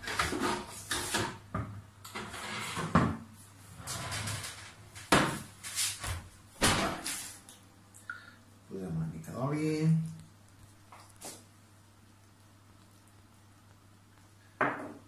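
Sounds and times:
metal trays scraping oven rack: 0:02.1 - 0:03.1, 0:03.8 - 0:04.9.

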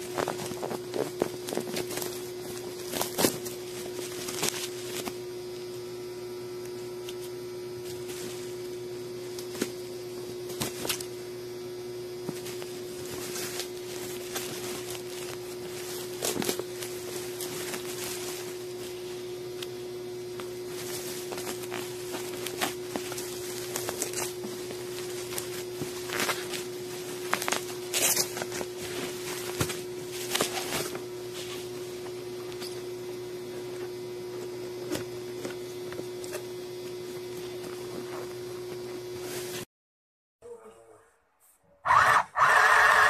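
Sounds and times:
knocks and rustles of handled parcel: 0:00.0 - 0:05.2, 0:10.4 - 0:11.1, 0:12.2 - 0:19.0, 0:20.4 - 0:32.8
steady hum: 0:00.0 - 0:39.7.

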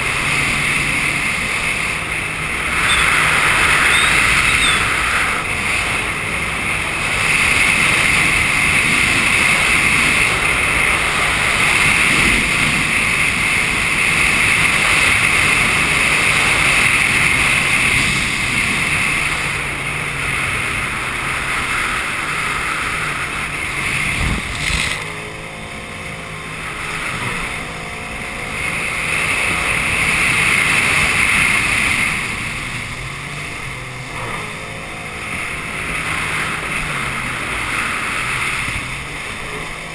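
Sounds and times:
wind on microphone: 0:00.0 - 0:25.2
jet ski engine running: 0:00.0 - 0:39.9
water rushing under hull: 0:00.0 - 0:39.9.

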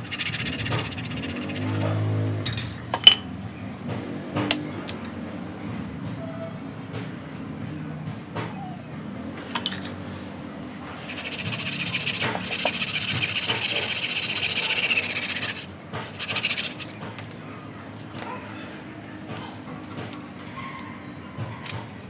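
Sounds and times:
tool scrubbing bark: 0:00.0 - 0:02.4, 0:11.0 - 0:17.2.

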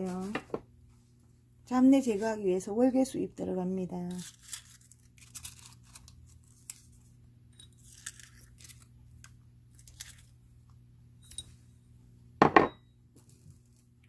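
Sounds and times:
dry leaves crinkling: 0:04.1 - 0:07.2, 0:07.8 - 0:08.9, 0:09.7 - 0:10.3.

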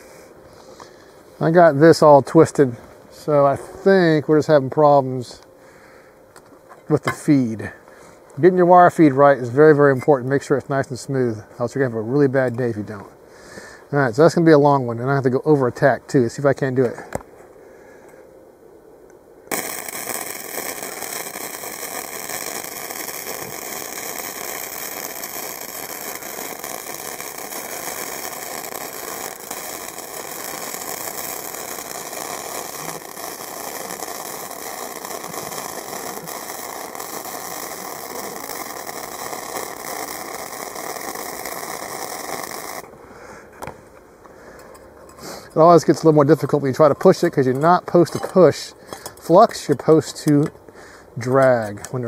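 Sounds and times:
welding arc crackling: 0:19.5 - 0:42.9.

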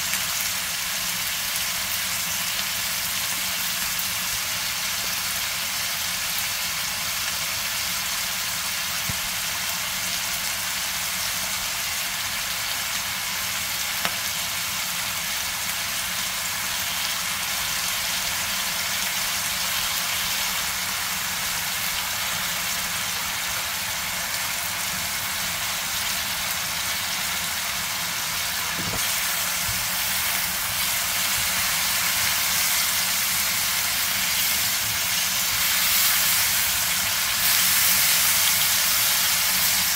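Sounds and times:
food sizzling in frying pan: 0:00.0 - 0:39.9.

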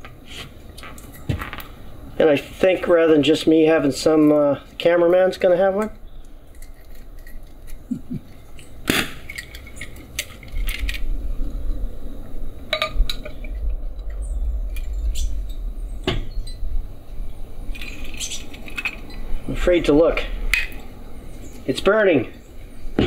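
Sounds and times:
sharp knock: 0:16.0 - 0:16.4.

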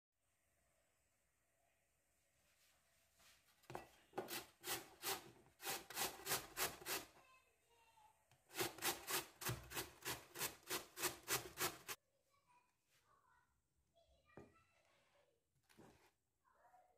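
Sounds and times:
potato grated on metal grater: 0:04.2 - 0:07.1, 0:08.5 - 0:12.0.

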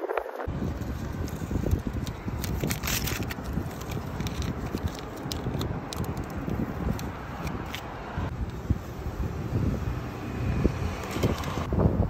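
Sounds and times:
masking paper crinkling: 0:00.5 - 0:07.9
tape peeling off: 0:00.5 - 0:07.9.

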